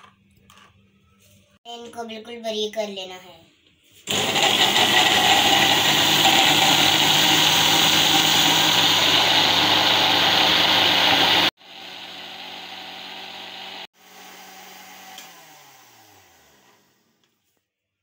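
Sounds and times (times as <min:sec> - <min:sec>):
food processor motor whirring: 0:04.1 - 0:17.2.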